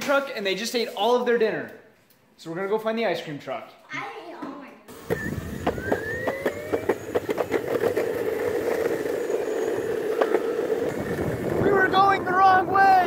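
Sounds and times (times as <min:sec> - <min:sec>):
small electric motor whine: 0:04.9 - 0:11.7.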